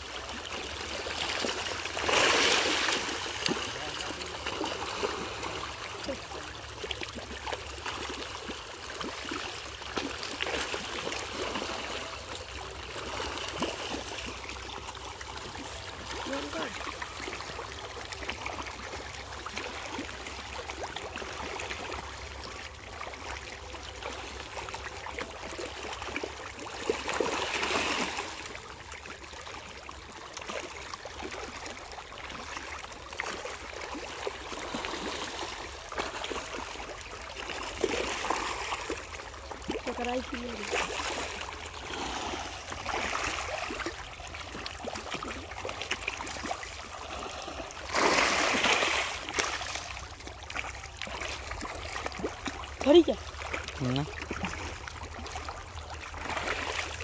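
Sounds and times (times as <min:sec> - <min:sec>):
fish splashing at water surface: 0:00.0 - 0:57.0.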